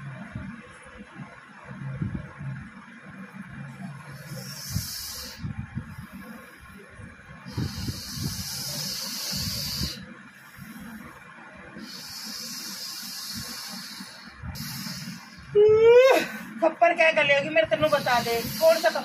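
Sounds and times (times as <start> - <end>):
low breathy noise: 4.0 - 16.6
person hissing: 11.8 - 16.5, 17.9 - 19.0.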